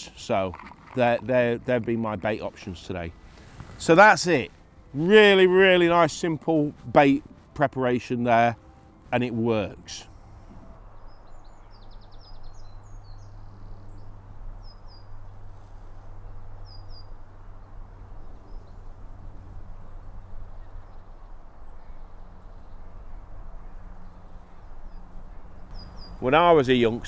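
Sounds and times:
low wind rumble: 0.0s - 27.0s
waterside ambience: 0.0s - 27.0s
small birds chirping: 10.7s - 27.0s.

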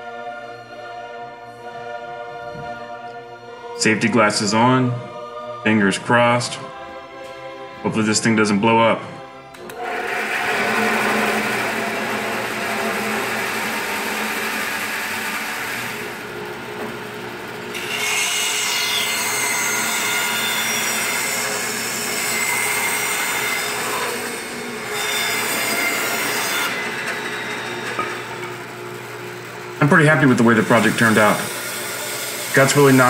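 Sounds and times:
band saw motor running: 9.6s - 33.0s
saw blade cutting wood: 9.7s - 17.1s, 17.7s - 33.0s.

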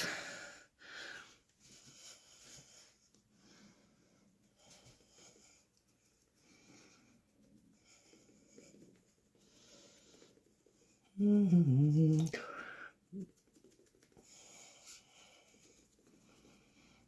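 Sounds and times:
soft rubbing on skin: 1.4s - 11.2s, 12.4s - 17.0s
woman humming low: 11.1s - 12.5s.

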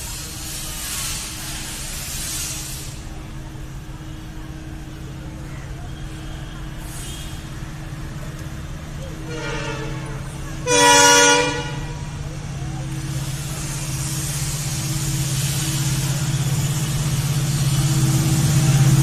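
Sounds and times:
diesel locomotive engine humming: 0.0s - 19.0s
locomotive air horn: 6.0s - 7.7s, 9.1s - 12.3s.

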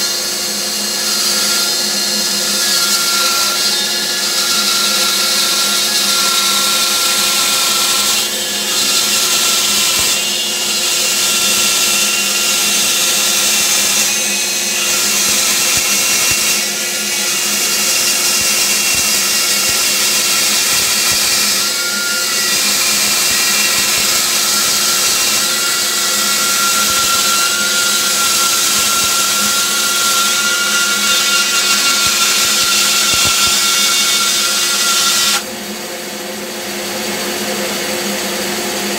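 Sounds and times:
band saw cutting wood: 0.0s - 35.8s.

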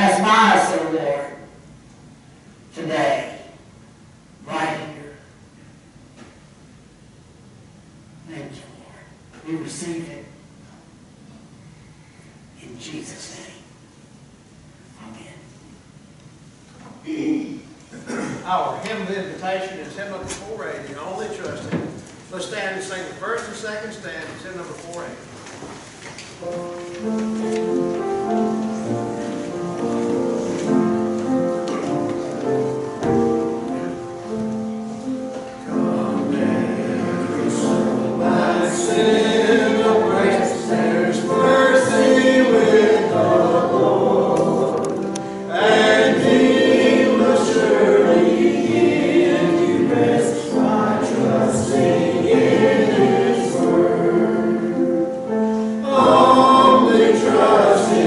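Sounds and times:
congregation singing a hymn: 0.0s - 1.4s, 4.4s - 5.3s, 26.4s - 58.0s
held accompaniment chords: 26.4s - 58.0s.

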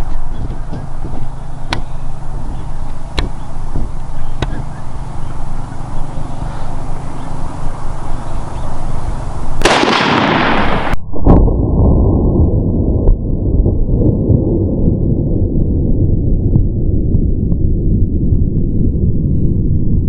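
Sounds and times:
rifle shot echoing: 0.0s - 11.0s
wind rumble on microphone: 0.0s - 20.0s.

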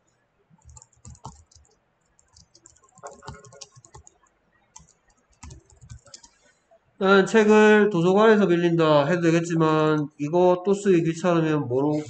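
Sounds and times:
keyboard typing: 0.6s - 6.5s.

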